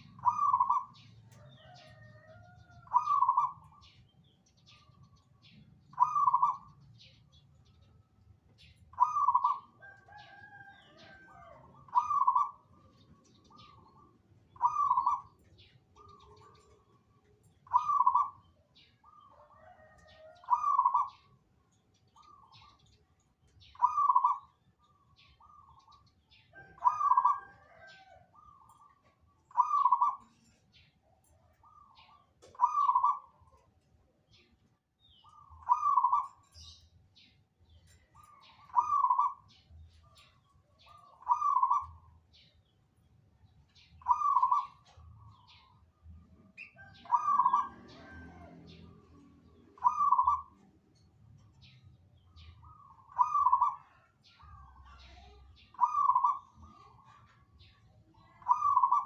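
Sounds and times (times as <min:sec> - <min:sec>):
dove cooing: 0:00.0 - 0:04.0, 0:05.9 - 0:06.8, 0:08.6 - 0:17.0, 0:17.6 - 0:21.3, 0:23.7 - 0:24.5, 0:26.6 - 0:30.8, 0:31.5 - 0:33.7, 0:35.2 - 0:36.6, 0:37.9 - 0:42.2, 0:44.0 - 0:45.6, 0:46.4 - 0:50.7, 0:52.6 - 0:54.8, 0:55.7 - 0:57.5, 0:58.4 - 0:59.0
small birds chirping: 0:00.0 - 0:59.0.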